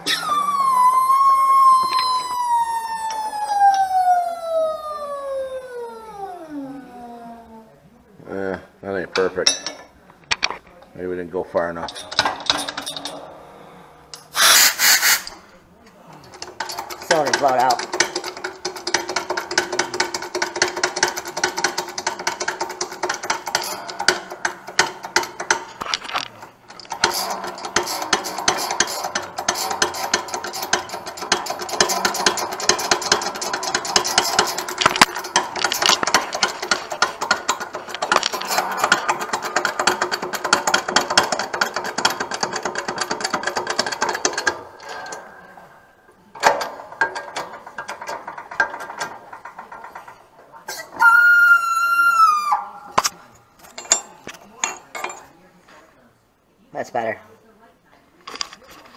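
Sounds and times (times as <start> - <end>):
hydraulic press mechanical chatter: 14.1 - 15.5, 16.1 - 55.3.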